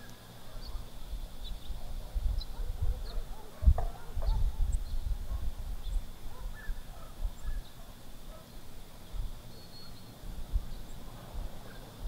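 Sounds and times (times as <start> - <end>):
wind on microphone: 0.6 - 7.8, 9.0 - 9.4, 10.2 - 11.8
faint bird chirps: 5.8 - 7.9, 9.0 - 12.0.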